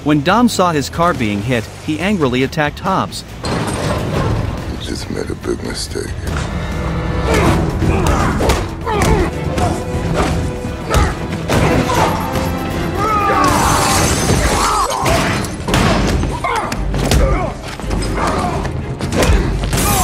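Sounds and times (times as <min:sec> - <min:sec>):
action film music: 0:00.0 - 0:20.0.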